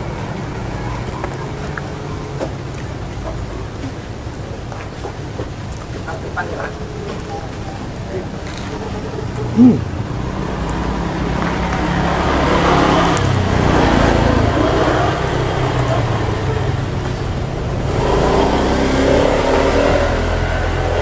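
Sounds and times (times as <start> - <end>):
vehicles passing close by: 0.0 - 21.0.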